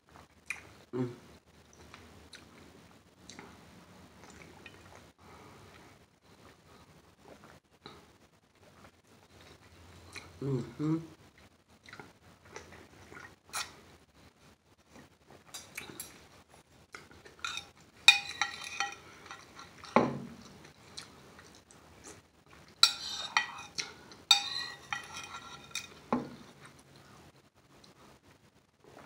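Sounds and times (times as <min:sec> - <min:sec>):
metal spoon clinking on bowl: 0:17.4 - 0:20.0, 0:22.8 - 0:26.2.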